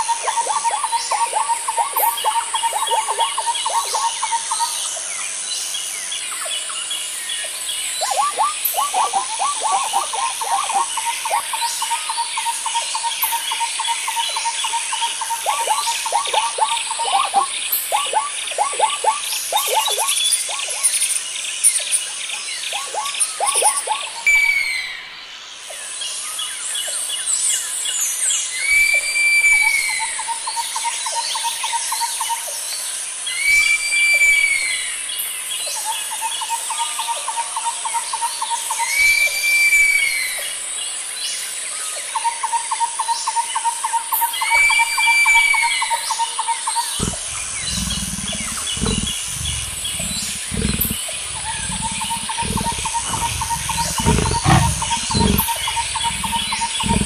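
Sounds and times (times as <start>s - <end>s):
bird whistle: 44.4s - 45.9s
bird trill: 46.8s - 57.0s
rapid bird ticking: 47.0s - 57.0s.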